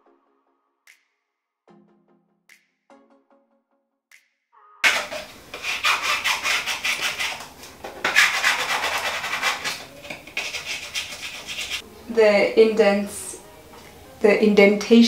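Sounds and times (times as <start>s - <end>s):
plastic scraper rubbing contact paper: 4.8s - 11.8s.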